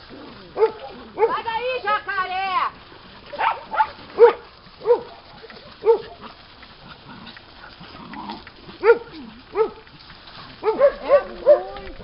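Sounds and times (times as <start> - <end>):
dog barking: 0.6 - 1.4, 3.4 - 5.2, 5.8 - 6.2, 8.8 - 9.8, 10.6 - 11.9.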